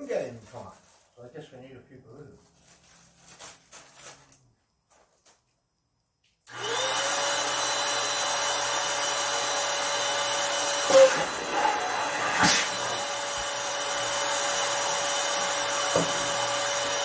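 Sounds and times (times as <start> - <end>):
handling rustles: 0.0 - 1.2, 2.3 - 5.5
electric balloon inflator whining: 6.5 - 17.0.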